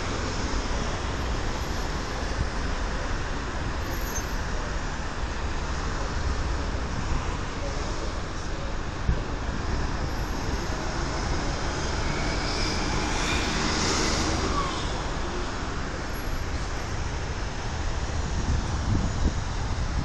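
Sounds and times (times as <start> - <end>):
busy road traffic: 0.0 - 20.0
bus passing close by: 9.9 - 20.0.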